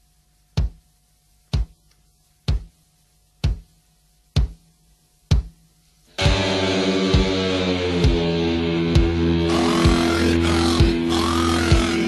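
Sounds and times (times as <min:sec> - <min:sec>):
sharp drum-like knocks: 0:00.6 - 0:00.8, 0:01.5 - 0:01.8, 0:02.5 - 0:02.8, 0:03.4 - 0:03.7, 0:04.4 - 0:04.6, 0:05.3 - 0:05.6.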